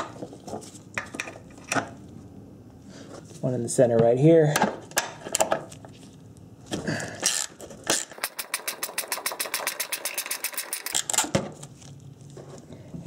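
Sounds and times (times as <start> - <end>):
ratchet wrench clicking: 7.2 - 11.1.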